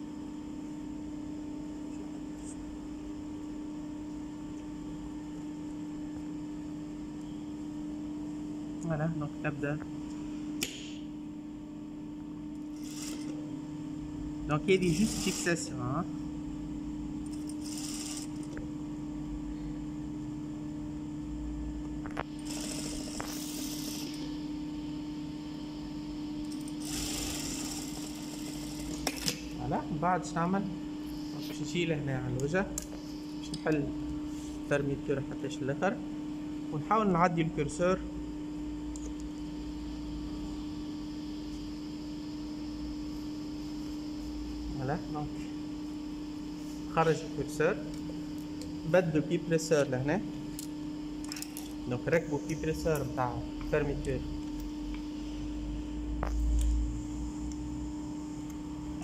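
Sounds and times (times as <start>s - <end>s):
steady machine hum: 0.0s - 59.0s
sewing machine stitching: 12.8s - 13.4s, 14.8s - 15.6s, 17.3s - 18.5s, 22.3s - 24.2s, 26.5s - 29.2s.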